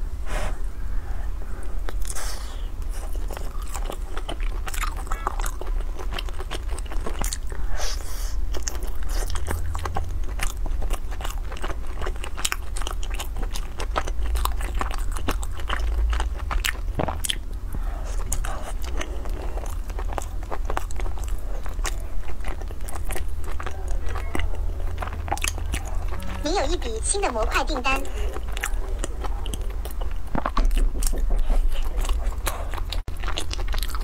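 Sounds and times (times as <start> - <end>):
low hum: 0.0 - 4.1, 15.4 - 33.8
chewing mouth sounds: 1.8 - 34.0.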